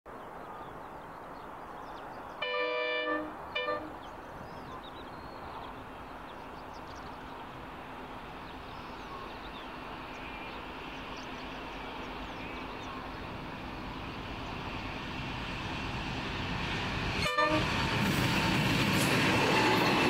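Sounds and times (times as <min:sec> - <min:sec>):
distant locomotive horn: 0:02.4 - 0:04.1, 0:17.1 - 0:18.0
diesel locomotive rumble: 0:06.0 - 0:20.0.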